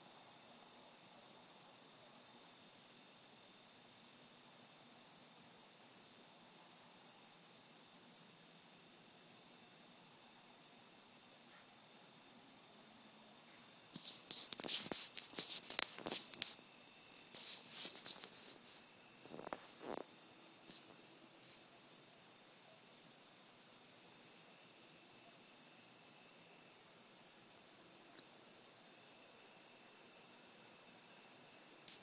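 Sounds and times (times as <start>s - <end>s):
crickets chirping: 0.0s - 32.0s
faint hiss: 0.0s - 32.0s
scratchy rustling and scraping: 13.5s - 22.0s.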